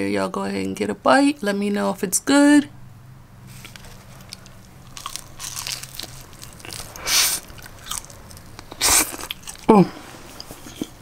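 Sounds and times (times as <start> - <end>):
tortilla crunching while chewing: 3.5 - 11.0.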